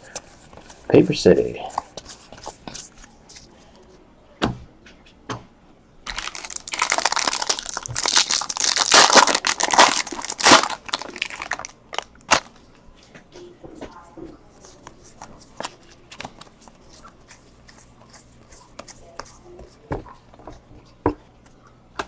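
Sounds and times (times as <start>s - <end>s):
foil wrapper crinkling and tearing: 6.1s - 12.6s.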